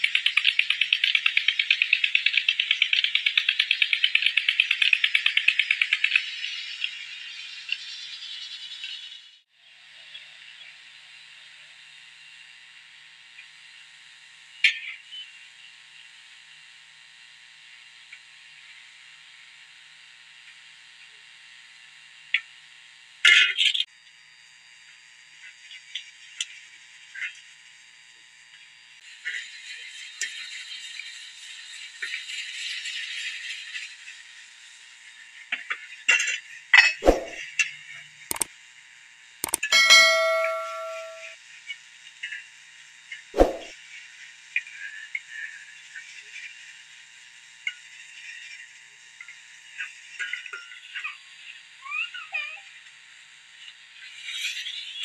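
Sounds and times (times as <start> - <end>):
faint utensil ticks: 39.4 - 39.7.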